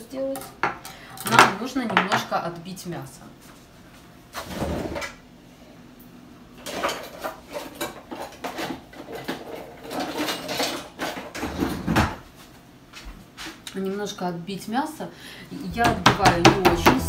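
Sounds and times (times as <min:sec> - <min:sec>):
metal utensils clattering in a drawer: 0:06.6 - 0:12.2.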